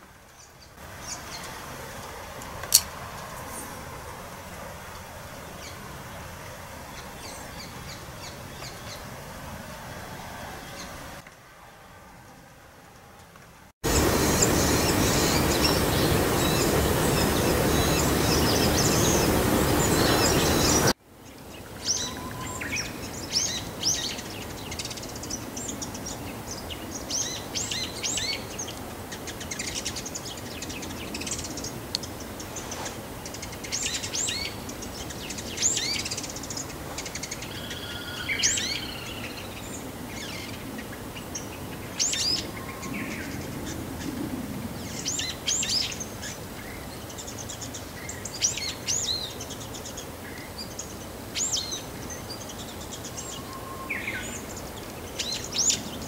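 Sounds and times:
bird singing high chirps: 0:14.0 - 0:21.0, 0:21.8 - 0:26.1, 0:33.3 - 0:39.6, 0:50.6 - 0:54.5.

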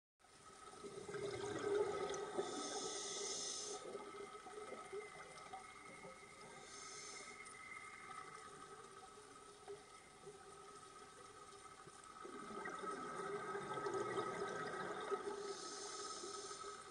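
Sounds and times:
faint steady hum: 0:00.2 - 0:16.9
bubbling exhaled air underwater: 0:00.7 - 0:09.1, 0:12.1 - 0:16.9
hissing regulator breath: 0:02.4 - 0:04.0, 0:06.5 - 0:07.6, 0:15.4 - 0:16.9.

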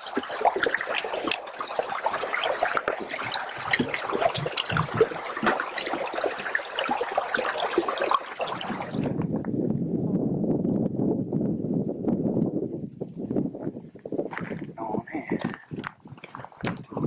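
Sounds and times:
stream babbling over stones: 0:00.0 - 0:09.4.

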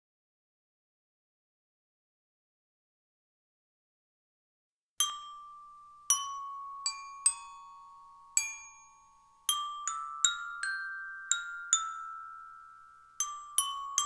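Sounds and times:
bell-like instrumental melody: 0:05.0 - 0:14.0.

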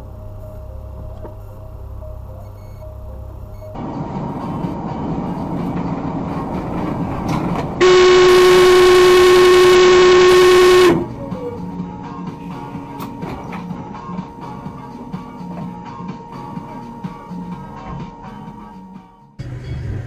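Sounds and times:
vehicle running and road noise: 0:00.0 - 0:16.0
vehicle horn: 0:07.8 - 0:11.3.

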